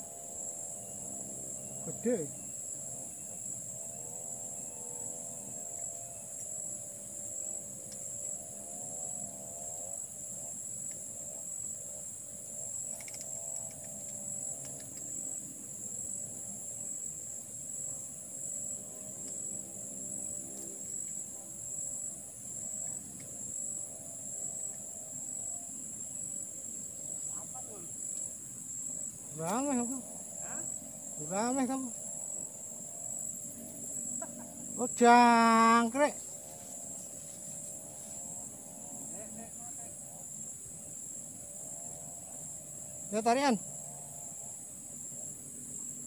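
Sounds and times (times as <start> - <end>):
insects chirring: 0.0 - 46.0
faint clicks: 12.9 - 15.2.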